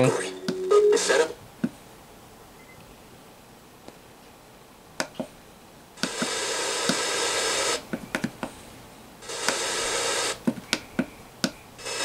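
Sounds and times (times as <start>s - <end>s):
radio static hiss: 0.0s - 1.4s, 6.0s - 8.6s, 9.2s - 12.0s.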